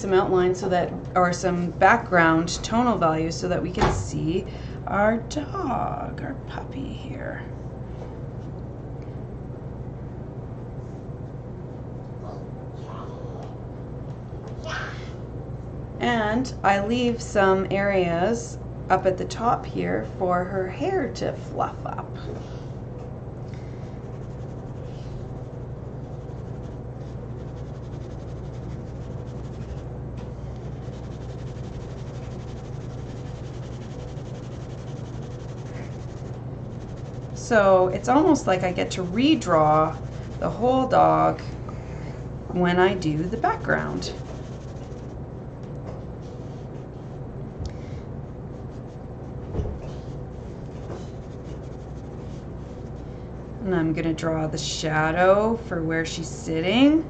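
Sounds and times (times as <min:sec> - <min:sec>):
steady low hum: 0:00.0 - 0:57.0
pencil scratching on paper: 0:24.1 - 0:29.9, 0:30.5 - 0:40.9, 0:42.9 - 0:45.2, 0:49.9 - 0:52.9.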